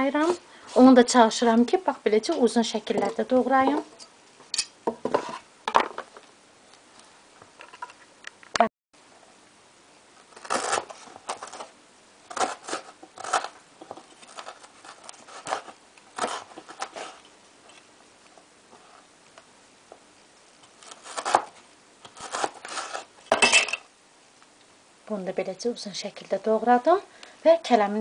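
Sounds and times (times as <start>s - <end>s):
knife slicing carrot: 10.4s - 11.7s, 12.3s - 13.6s, 14.3s - 17.2s, 20.8s - 23.1s.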